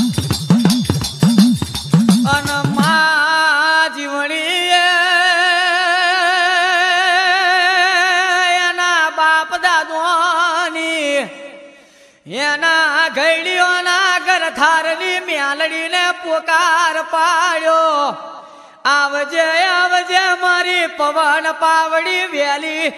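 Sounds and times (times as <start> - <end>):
drum beat with jingles: 0.0 - 3.1.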